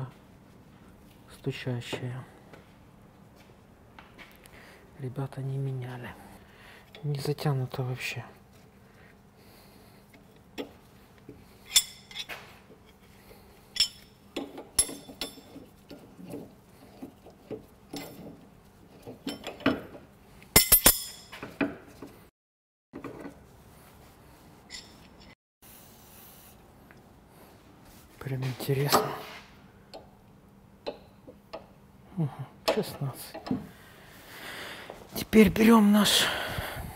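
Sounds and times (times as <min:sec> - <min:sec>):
metal tools clinking on steel: 0:11.6 - 0:13.1, 0:13.7 - 0:15.6, 0:19.0 - 0:19.9, 0:20.5 - 0:21.6, 0:24.7 - 0:25.4.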